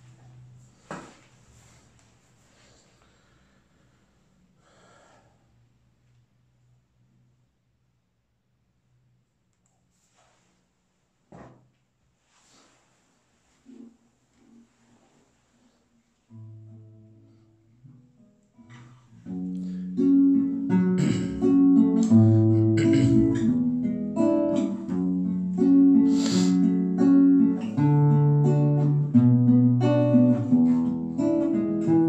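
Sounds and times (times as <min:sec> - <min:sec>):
acoustic guitar strumming: 0:16.3 - 0:32.0.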